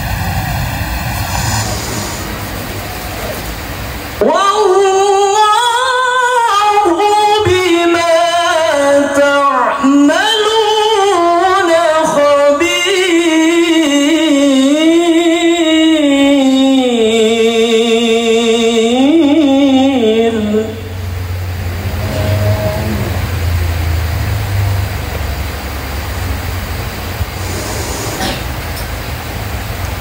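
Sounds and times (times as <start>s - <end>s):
man reciting melodically: 4.2s - 21.2s.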